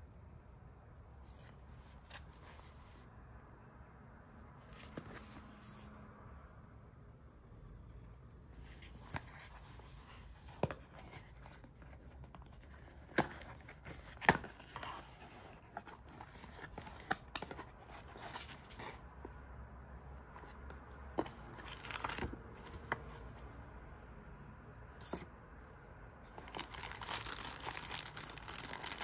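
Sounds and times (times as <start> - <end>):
paper rustling: 21.2 - 23.4, 26.3 - 29.0.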